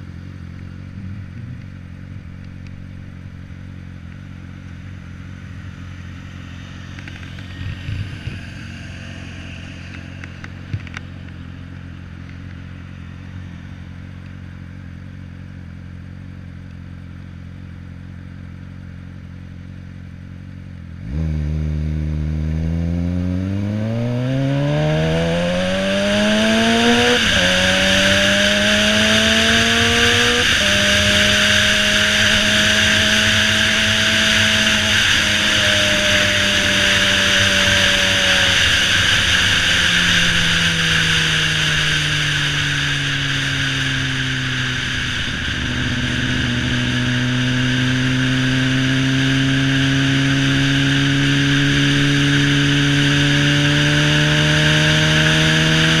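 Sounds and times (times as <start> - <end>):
motorcycle engine revving: 0.0 - 56.0
wind on microphone: 7.5 - 9.7.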